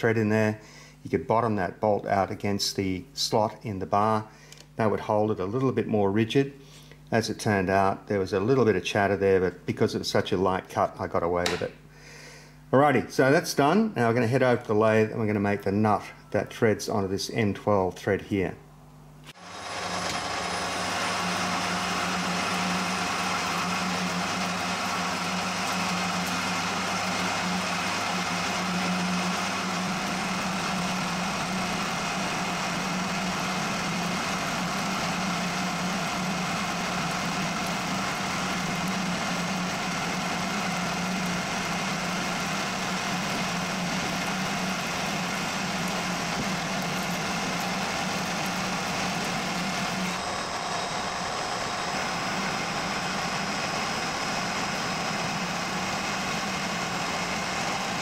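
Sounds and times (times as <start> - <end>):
metal lathe cutting: 19.4 - 58.0.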